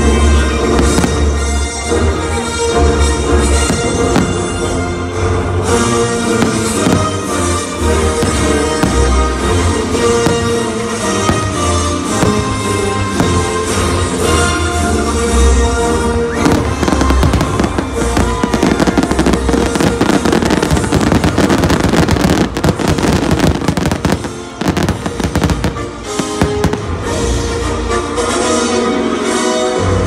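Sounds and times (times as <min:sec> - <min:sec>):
music: 0:00.0 - 0:30.0
fireworks bursting and crackling: 0:03.4 - 0:04.9, 0:05.7 - 0:27.5.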